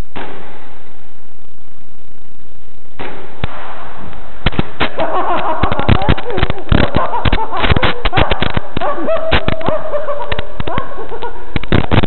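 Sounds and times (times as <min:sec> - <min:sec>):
airsoft gunfire cracks and pops: 0:03.0 - 0:09.7.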